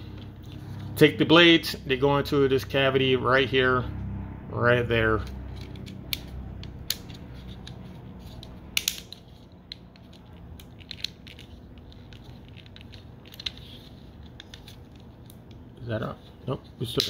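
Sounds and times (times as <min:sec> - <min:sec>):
low hum: 0:00.0 - 0:13.2.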